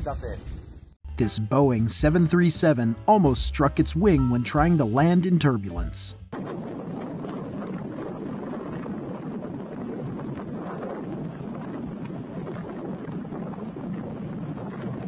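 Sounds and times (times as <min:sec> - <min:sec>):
wind on microphone: 0:06.3 - 0:15.0.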